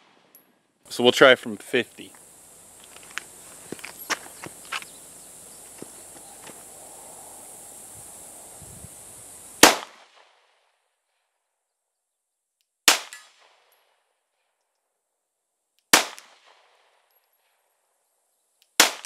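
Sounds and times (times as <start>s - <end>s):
pistol shots: 9.6s - 10.3s, 12.9s - 13.5s, 15.9s - 16.6s, 18.8s - 19.0s.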